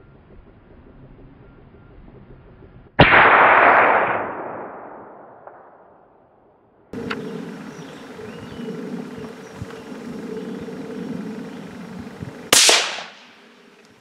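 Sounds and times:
loud bang echoing: 0:03.0 - 0:05.8
steady low hum: 0:06.9 - 0:14.0
faint chirps: 0:07.0 - 0:12.5.

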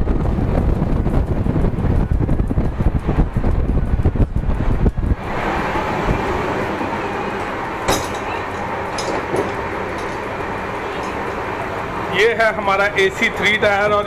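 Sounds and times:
wind buffeting microphone: 0:00.0 - 0:14.0
train coach rumble and hiss: 0:04.6 - 0:14.0.

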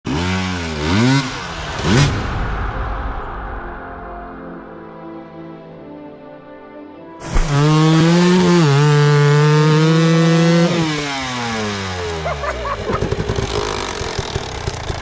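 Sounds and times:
dirt bike engine revving: 0:00.1 - 0:02.3, 0:07.2 - 0:15.0
wheel spinning in mud: 0:11.2 - 0:15.0.

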